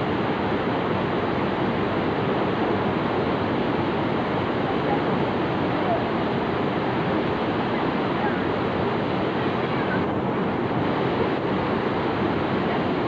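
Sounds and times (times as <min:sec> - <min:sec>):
water rushing: 0:00.0 - 0:13.0.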